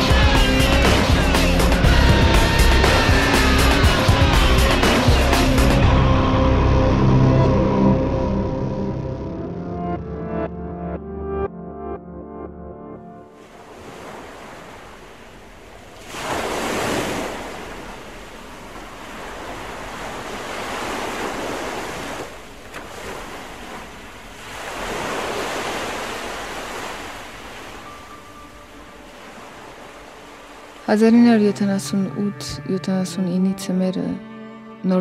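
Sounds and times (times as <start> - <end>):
waves breaking on shore: 13.3 - 31.6.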